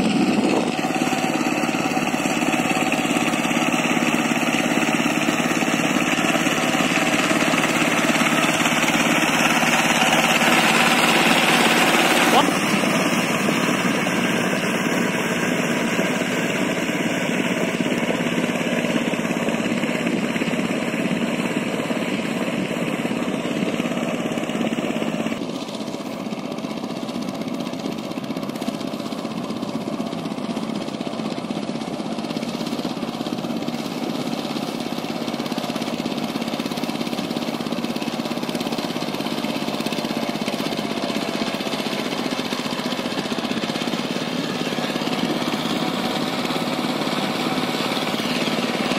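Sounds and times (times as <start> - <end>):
diesel engine chugging: 0.0 - 48.9.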